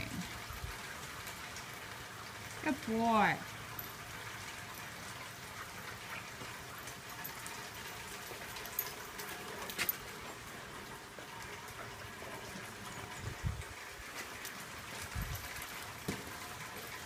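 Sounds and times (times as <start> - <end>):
steady rain hiss: 0.0 - 17.0.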